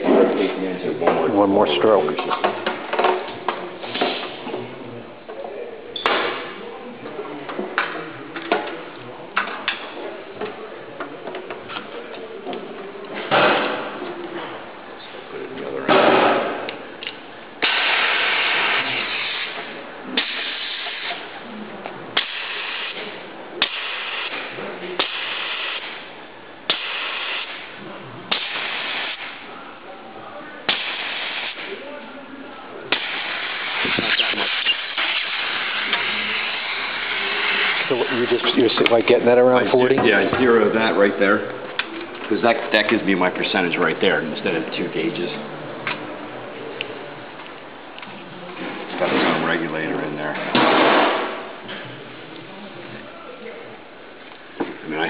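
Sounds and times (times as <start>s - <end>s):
bursts of hissing air: 17.6s - 19.6s, 20.2s - 21.2s, 22.2s - 26.0s, 26.7s - 27.7s, 28.3s - 29.4s, 30.7s - 31.7s, 32.9s - 37.9s
sharp snap: 30.7s - 31.6s.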